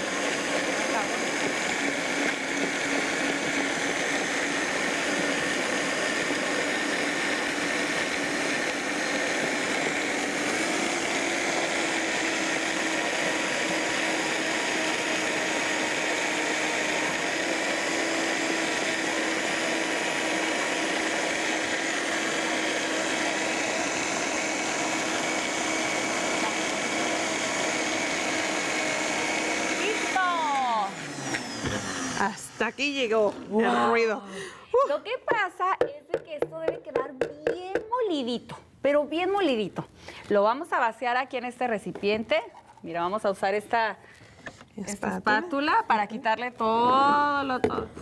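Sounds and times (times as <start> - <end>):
blender motor whining: 0.0 - 34.2.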